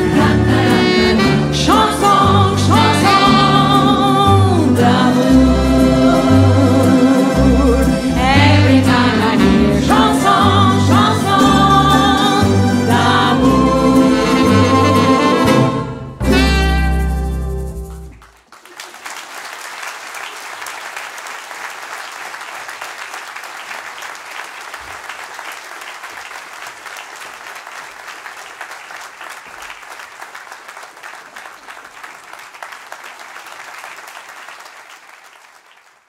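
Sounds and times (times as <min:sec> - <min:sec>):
audience applauding: 0:16.9 - 0:36.0.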